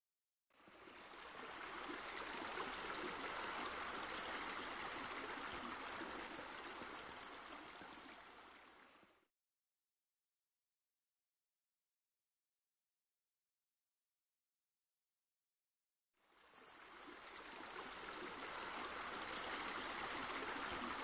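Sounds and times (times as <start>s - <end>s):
rush of running water: 0.5s - 9.3s, 16.2s - 21.0s.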